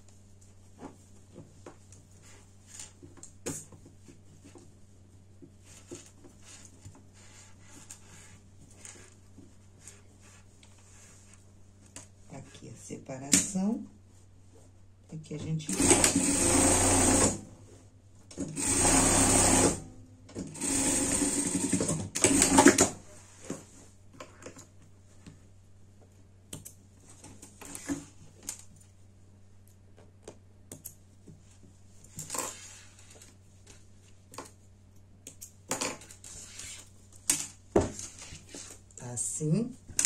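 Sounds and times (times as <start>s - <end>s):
sewing machine stitching: 15.7s - 17.4s, 18.5s - 19.9s, 20.5s - 22.9s.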